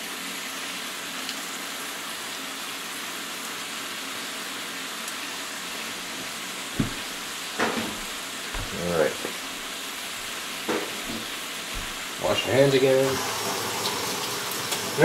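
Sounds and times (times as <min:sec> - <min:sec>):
sauce sizzling in a skillet: 0:00.0 - 0:15.0
short thump: 0:06.8 - 0:09.4, 0:10.7 - 0:12.2.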